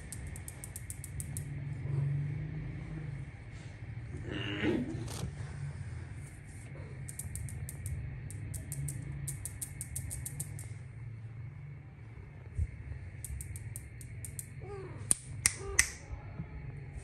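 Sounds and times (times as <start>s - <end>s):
rapid high ticking: 0.0s - 1.7s, 6.3s - 10.8s, 13.2s - 14.6s
finger snaps: 7.1s - 10.7s, 13.2s - 16.1s.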